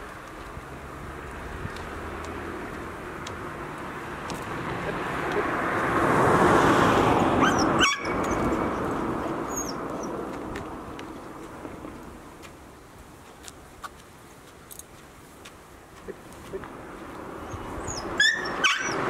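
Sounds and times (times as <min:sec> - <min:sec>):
car driving past: 0:00.6 - 0:12.3.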